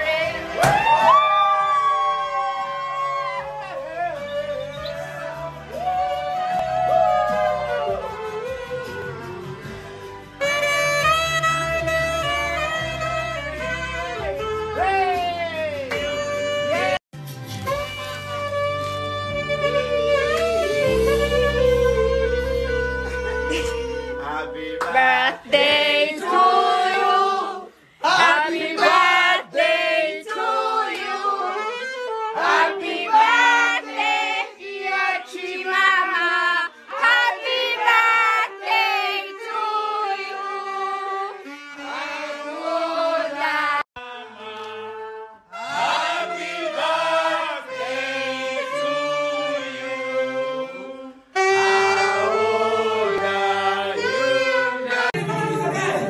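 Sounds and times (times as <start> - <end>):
backing music: 3.0 - 35.4, 36.2 - 56.0
person singing: 47.7 - 56.0.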